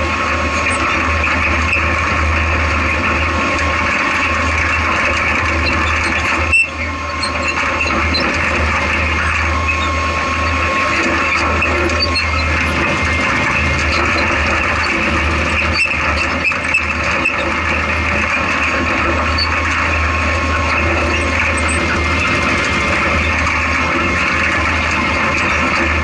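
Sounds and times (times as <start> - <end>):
chassis rumbling and rattling: 0.0 - 26.0
engine running under load: 0.0 - 26.0.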